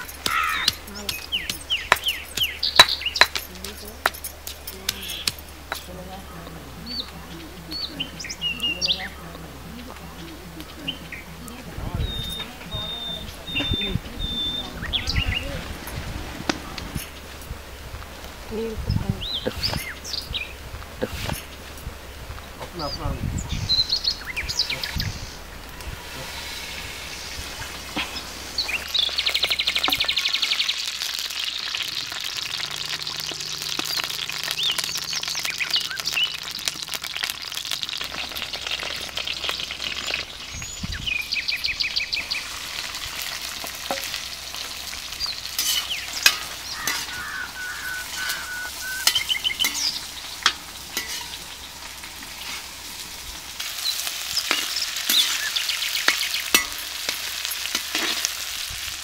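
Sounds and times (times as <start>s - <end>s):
birds chirping: 0.0s - 59.0s
onions sizzling in oil: 6.8s - 59.0s
metal spoon stirring and scraping: 45.5s - 47.4s, 49.0s - 52.7s, 54.1s - 58.5s.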